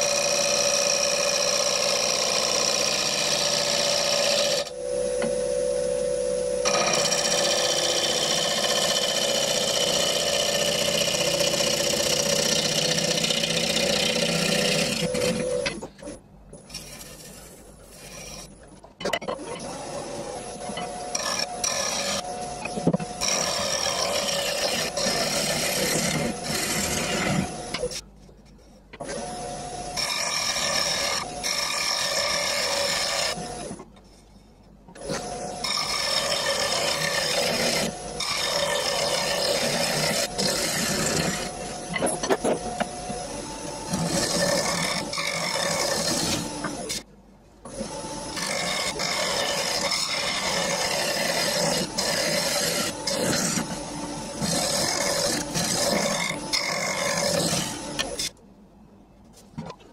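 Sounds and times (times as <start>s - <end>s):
gouge rasping wood on lathe: 6.7s - 15.4s, 21.1s - 22.3s, 23.2s - 27.8s, 30.0s - 33.4s, 35.2s - 41.6s, 43.9s - 47.0s, 48.4s - 53.8s, 54.4s - 58.2s.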